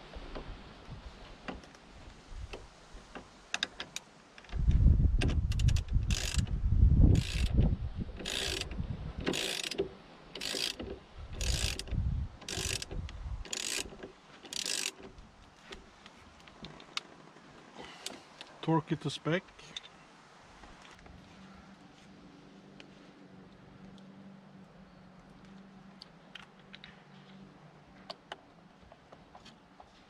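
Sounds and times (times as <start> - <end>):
ratchet wrench clicking: 5.2 - 6.5, 7.1 - 7.6, 8.2 - 9.8, 10.4 - 15.1.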